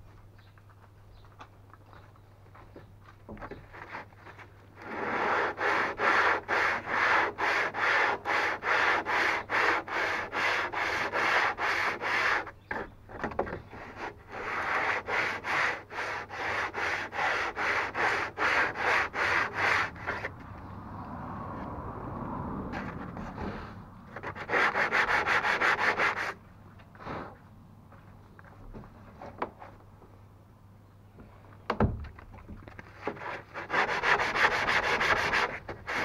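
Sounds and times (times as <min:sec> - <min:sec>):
hand tool rasping wood: 0:04.8 - 0:20.4, 0:24.2 - 0:26.4, 0:33.0 - 0:36.0.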